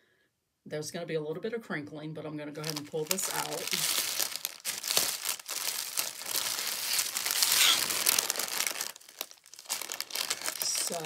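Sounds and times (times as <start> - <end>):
plastic bag crinkling: 2.6 - 11.0.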